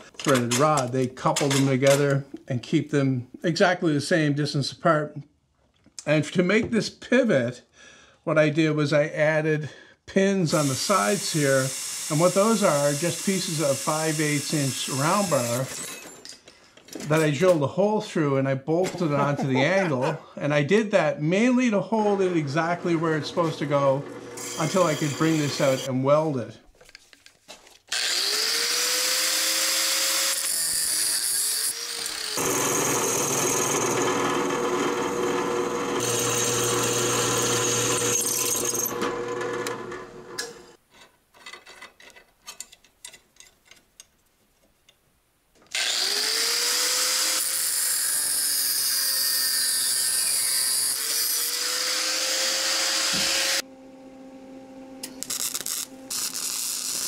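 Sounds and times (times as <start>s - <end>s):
electric power tool motor running: 10.6s - 14.2s, 23.2s - 25.9s, 27.9s - 40.7s, 45.7s - 48.4s, 49.7s - 53.6s.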